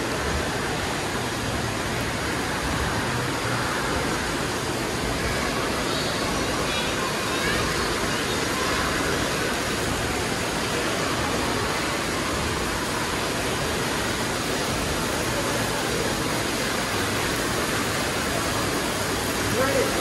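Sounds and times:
running water: 0.0 - 20.0
ventilation noise: 0.0 - 20.0.

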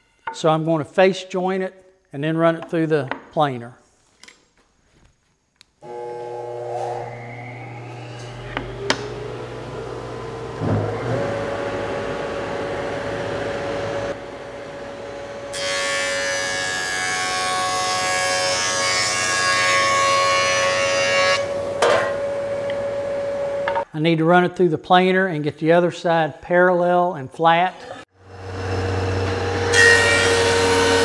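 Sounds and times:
cutterhead cutting wood board: 5.8 - 14.2
jointer motor whine and hum: 5.8 - 16.6, 28.2 - 31.0.

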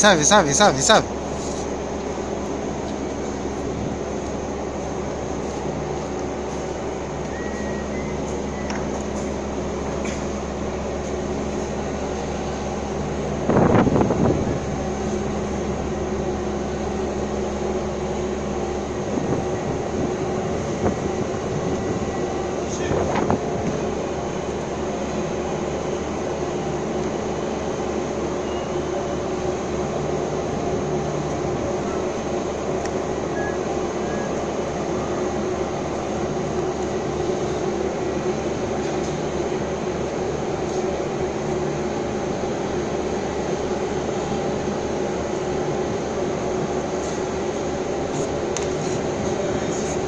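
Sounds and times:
diesel engine droning: 0.0 - 50.0.

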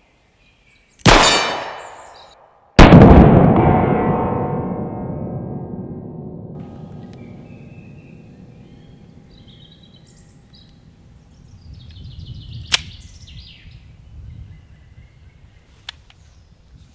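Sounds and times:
birds chirping: 1.6 - 2.4, 6.8 - 16.6.

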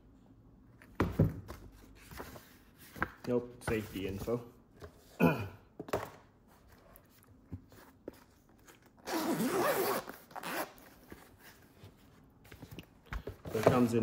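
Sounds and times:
zipper being unzipped: 9.0 - 10.8.

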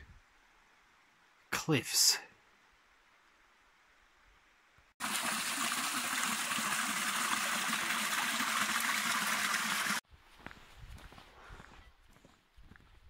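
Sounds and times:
creek splashing over stones: 5.0 - 10.0.

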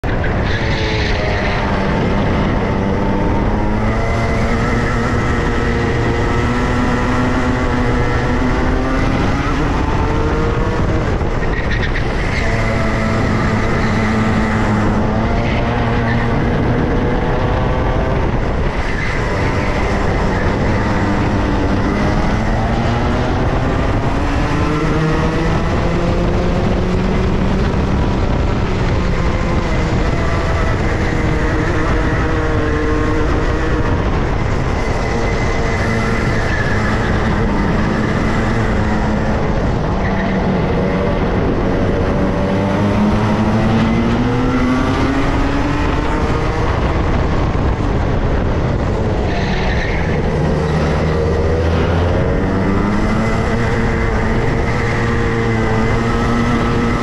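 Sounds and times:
go-kart engine revving: 0.0 - 57.0
wind and road noise: 0.0 - 57.0.

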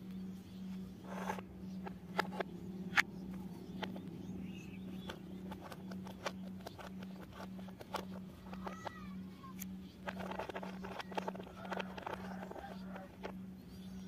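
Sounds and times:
steady low hum: 0.0 - 14.0
plastic toy clicks and taps: 1.1 - 3.1, 3.8 - 4.1, 4.9 - 13.4.

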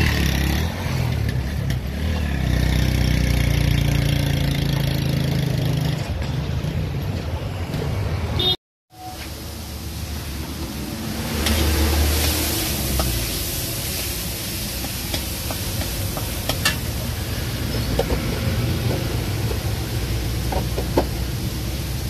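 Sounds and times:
spatula scraping a wok: 11.0 - 19.7.

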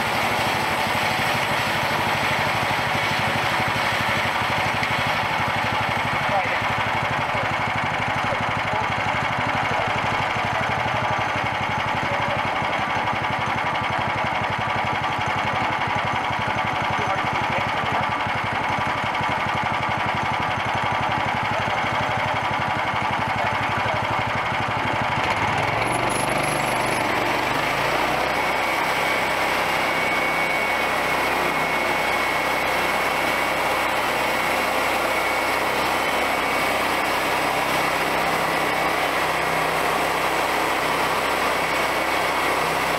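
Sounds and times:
sawmill engine running: 0.0 - 42.9.

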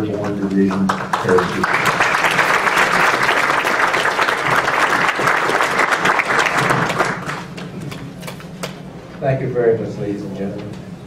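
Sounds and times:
audience applauding: 0.1 - 7.8.

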